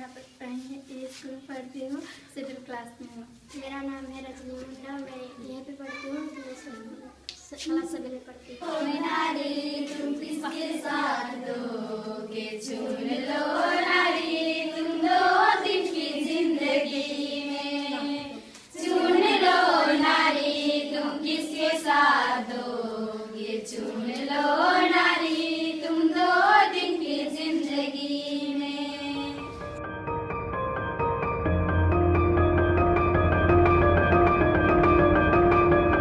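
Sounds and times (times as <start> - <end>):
girls singing in unison: 8.5 - 29.6.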